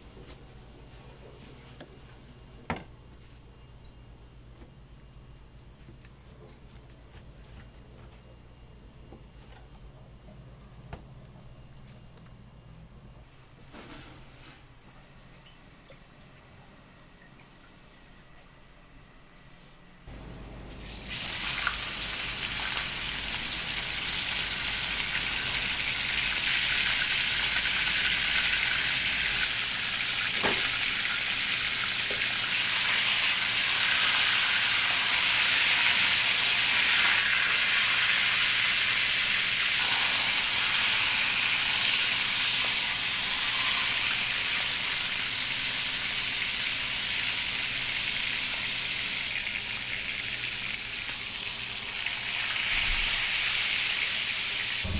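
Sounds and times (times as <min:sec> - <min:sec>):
meat sizzling in a frying pan: 0:20.9 - 0:54.8.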